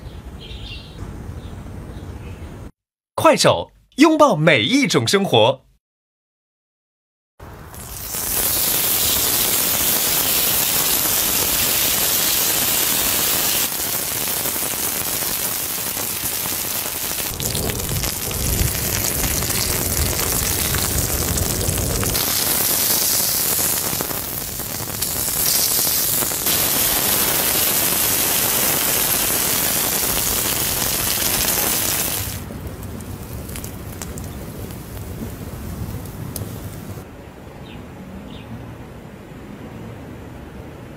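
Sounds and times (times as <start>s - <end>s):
meat sizzling in hot oil: 7.7s - 32.5s, 33.1s - 35.1s.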